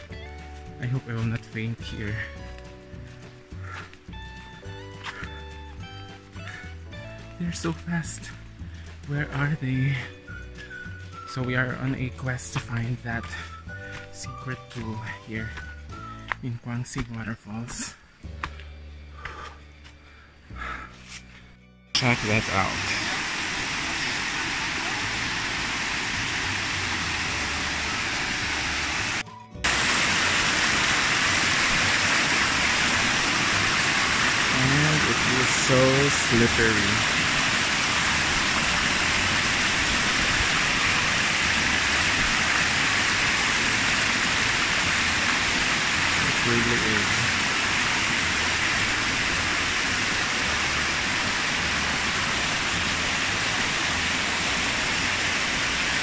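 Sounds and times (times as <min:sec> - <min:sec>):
waterfall rushing: 0:22.0 - 0:56.0.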